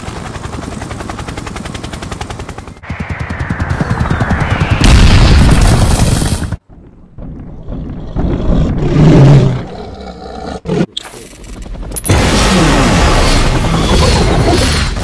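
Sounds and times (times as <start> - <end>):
dinosaur roar: 7.6 - 10.9.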